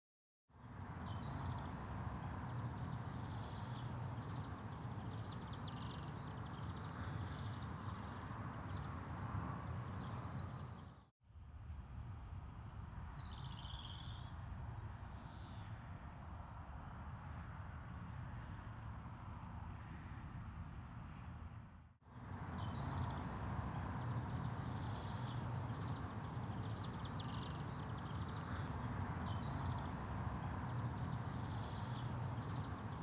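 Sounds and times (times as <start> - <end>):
birds chirping and trilling: 0.7 - 9.0, 22.2 - 33.0.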